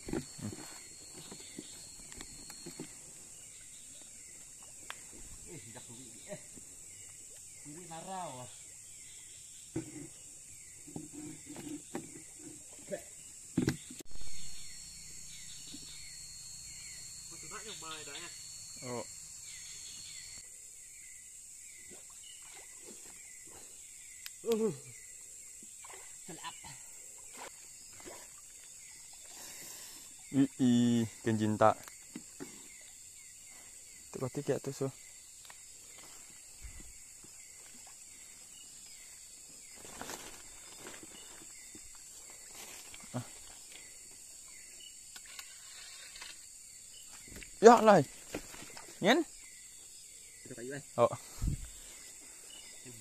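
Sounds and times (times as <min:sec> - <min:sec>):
night insects chirring: 0:00.0 - 0:53.0
leaves rustling: 0:38.8 - 0:44.0, 0:47.1 - 0:49.1
footsteps in undergrowth: 0:39.6 - 0:43.9.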